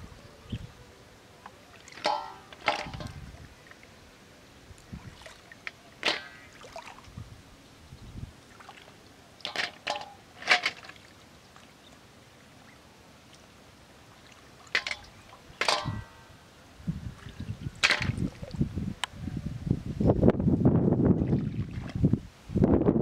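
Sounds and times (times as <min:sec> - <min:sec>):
shells clattering in metal basin: 0:02.0 - 0:03.2, 0:06.0 - 0:06.4, 0:09.5 - 0:10.9, 0:14.7 - 0:16.2.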